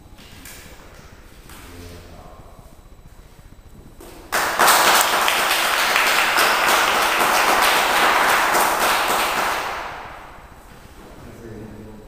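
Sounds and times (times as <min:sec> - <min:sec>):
group applauding: 0:04.3 - 0:10.5.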